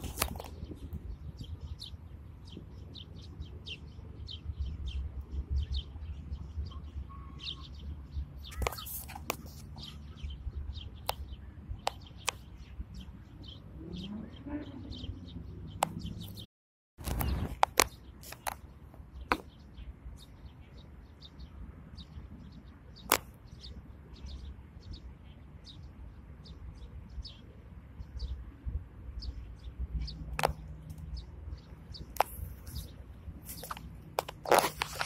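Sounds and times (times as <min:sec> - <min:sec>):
small birds chirping: 0:00.0 - 0:35.0
sharp clicks: 0:17.0 - 0:18.6.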